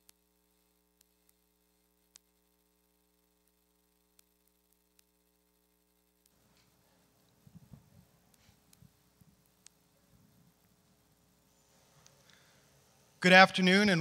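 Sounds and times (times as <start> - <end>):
faint ticks: 0.0 - 11.0
faint mains hum: 0.0 - 14.0.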